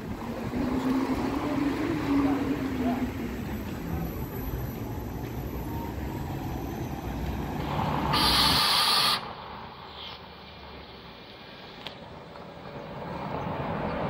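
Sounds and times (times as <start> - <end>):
bus driving past: 0.0 - 14.0
faint street sound: 0.0 - 14.0
air brake hiss: 8.1 - 9.3.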